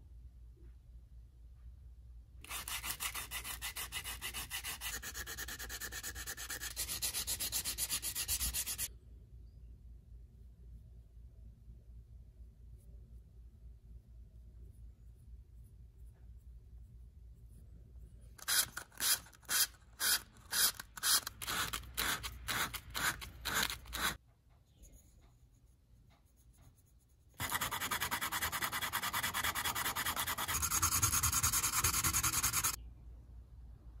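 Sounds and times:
sandpaper rasping on wood: 0:02.5 - 0:08.9, 0:18.5 - 0:24.2, 0:27.4 - 0:32.8.

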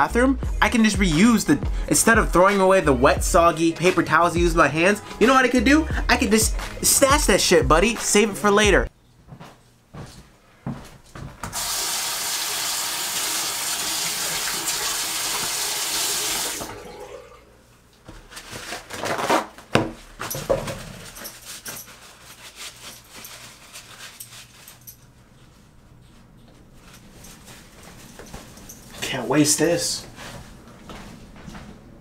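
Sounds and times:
sink tap running: 0:11.5 - 0:17.2
paper towel rustling: 0:18.0 - 0:31.2.

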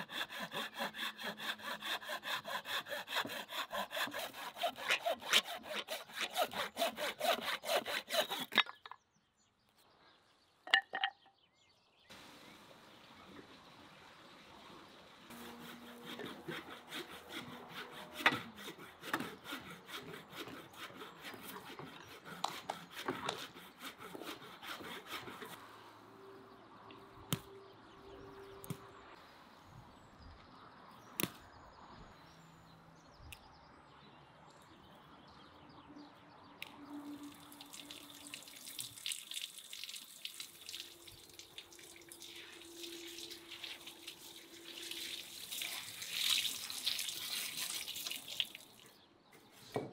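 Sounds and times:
tap water running: 0:37.4 - 0:48.8.

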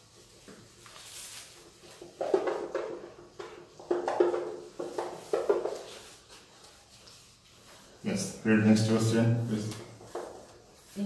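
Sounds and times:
cloth rubbing on whiteboard: 0:00.0 - 0:11.0.

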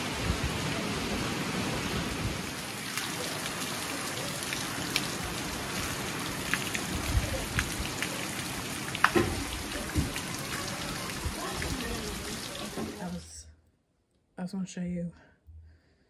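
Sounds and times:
heavy rain falling: 0:00.0 - 0:13.2
drips and taps: 0:09.0 - 0:10.6.

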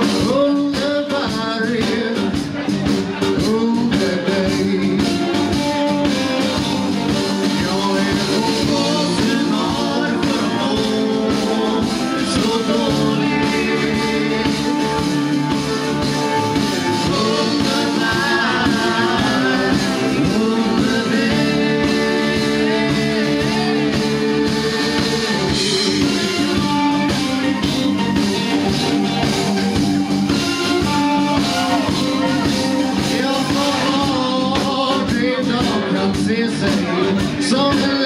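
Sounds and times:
drums: 0:00.0 - 0:38.0
electric guitar: 0:00.0 - 0:38.0
keyboard: 0:00.0 - 0:38.0
woman singing: 0:16.9 - 0:25.3, 0:31.6 - 0:38.0.

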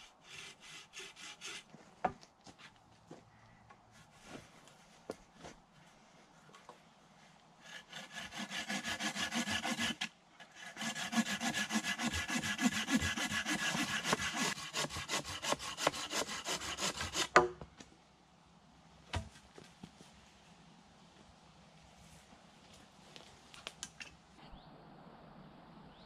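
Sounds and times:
hand saw cutting wood: 0:00.2 - 0:01.8, 0:07.6 - 0:17.5.

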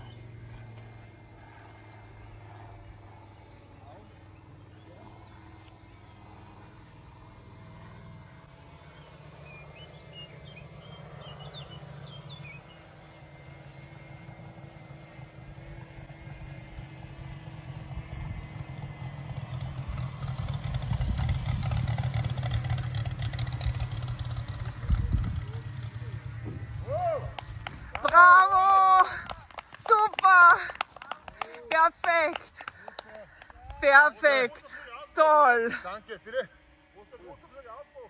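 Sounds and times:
model aircraft engine: 0:00.0 - 0:38.0
bird chirping: 0:08.9 - 0:12.8.

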